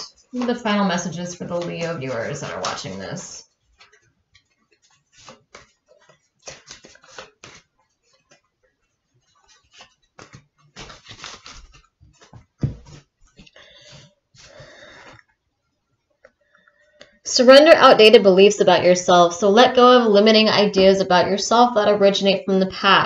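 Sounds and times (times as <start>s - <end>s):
cards being shuffled: 0.2s - 15.2s.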